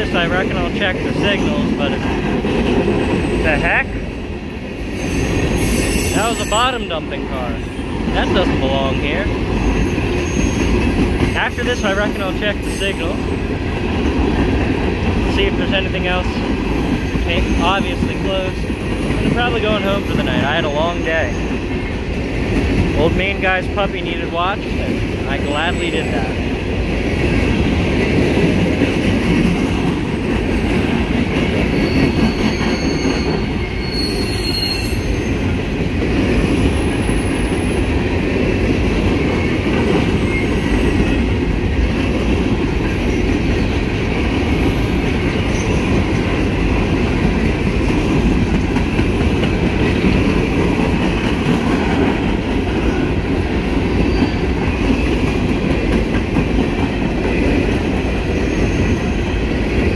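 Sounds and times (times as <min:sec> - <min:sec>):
freight train wheels rumbling on rail: 0:00.0 - 0:59.9
high wheel squeals: 0:04.9 - 0:07.0, 0:09.6 - 0:13.4, 0:31.7 - 0:35.4, 0:58.1 - 0:59.4.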